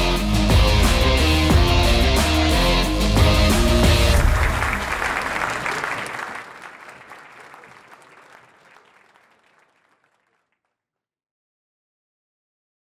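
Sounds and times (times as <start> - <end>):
audience applauding: 3.6 - 10.5.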